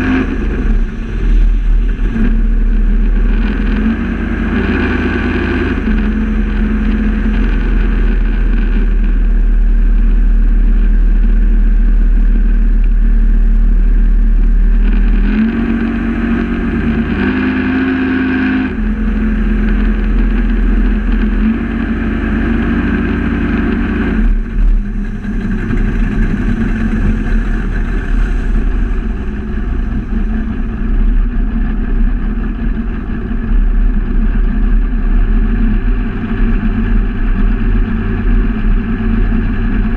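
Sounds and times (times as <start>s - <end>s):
speedboat engine running: 0.0s - 39.9s
water rushing past hull: 14.3s - 39.9s.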